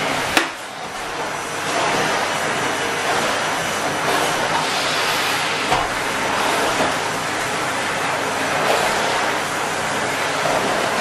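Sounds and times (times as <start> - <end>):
vacuum cleaner running: 0.0 - 11.0.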